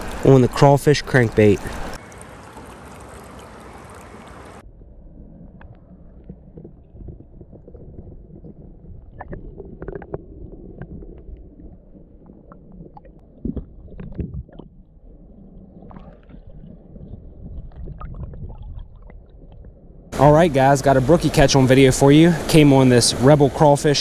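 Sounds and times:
creek water hissing: 0.0 - 4.6, 20.2 - 24.0
muffled underwater current rumble: 0.0 - 22.5.

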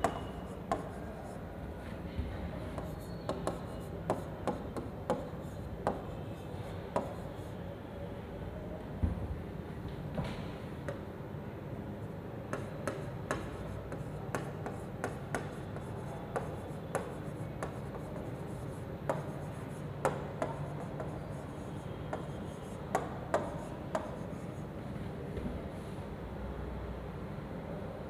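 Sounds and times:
stylus tapping and scraping screen: 0.0 - 1.4, 2.7 - 7.5, 12.5 - 24.6.

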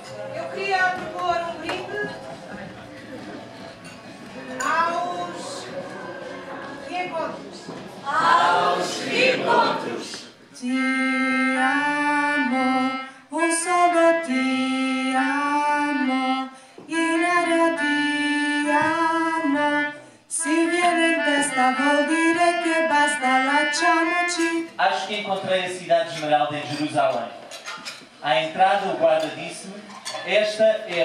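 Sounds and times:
melodica playing: 10.6 - 24.8
woman singing: 10.6 - 24.8.

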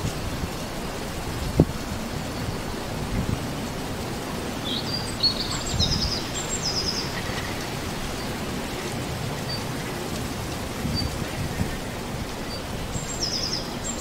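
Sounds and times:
wind with low rumble: 0.0 - 14.0
songbird chirping: 4.6 - 9.8, 12.4 - 14.0.

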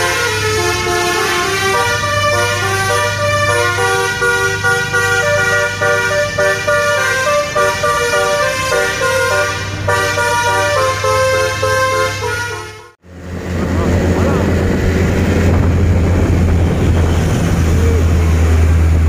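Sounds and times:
truck horn playing melody: 0.0 - 13.0
low drone: 13.0 - 19.0.

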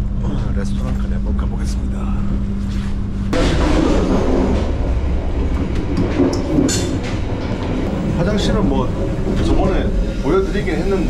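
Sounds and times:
train wheels rumbling on rails: 3.3 - 11.0.

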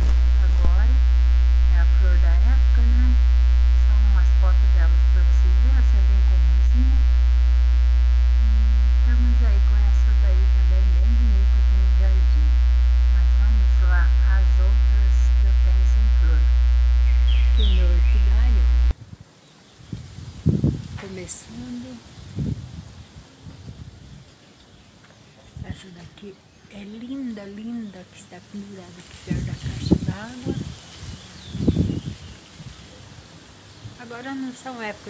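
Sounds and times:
low electrical hum: 0.0 - 19.0.

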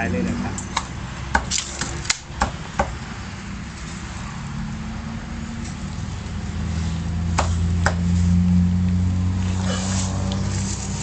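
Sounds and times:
cleaver chopping on wooden block: 0.8 - 3.0, 7.3 - 8.1.

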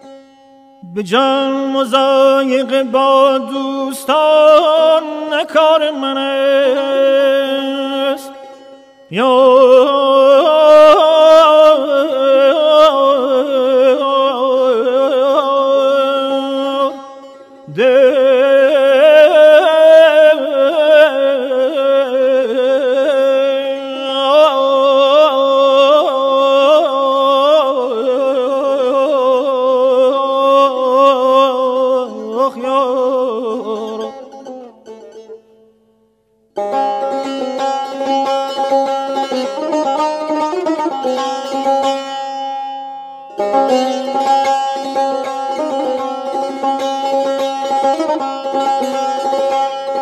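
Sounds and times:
person singing ornamented phrases: 0.8 - 8.4, 9.1 - 35.5.

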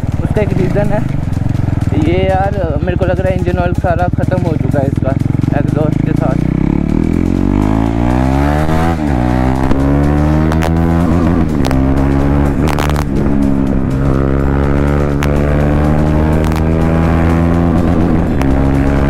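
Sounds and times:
unmuffled motorcycle engine accelerating: 0.0 - 19.0.

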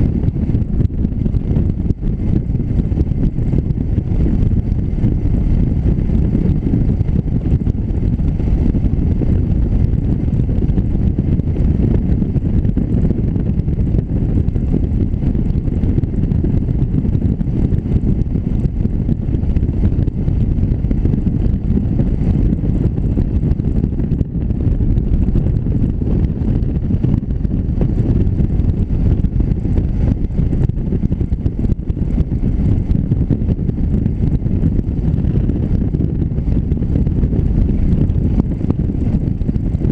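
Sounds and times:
motorcycle riding: 0.0 - 39.9
wind buffeting microphone: 0.0 - 39.9.

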